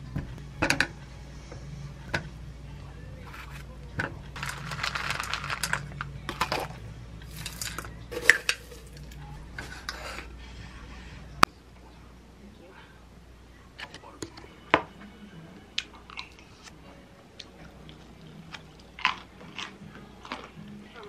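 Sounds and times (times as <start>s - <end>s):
nuts rattling into bowl: 4.4s - 9.2s.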